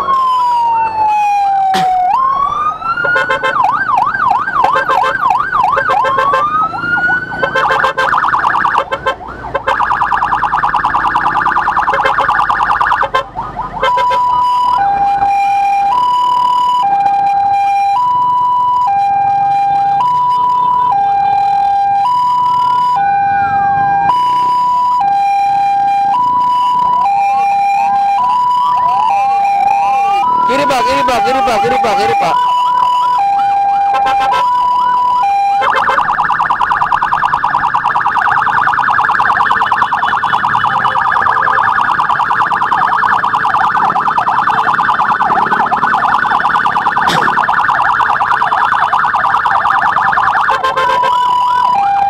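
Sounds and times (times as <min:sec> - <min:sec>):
electronic emergency siren: 0:00.0 - 0:52.0.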